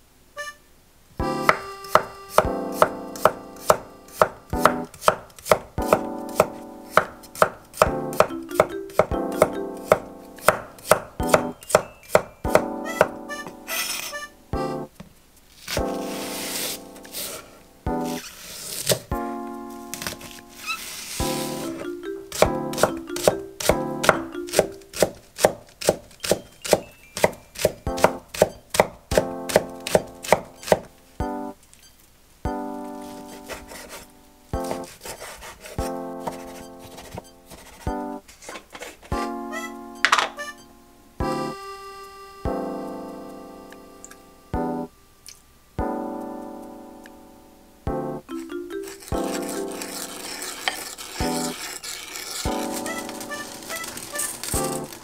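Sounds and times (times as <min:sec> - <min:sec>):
knife chopping on wooden board: 0:01.4 - 0:13.2, 0:22.3 - 0:30.9, 0:34.6 - 0:37.9.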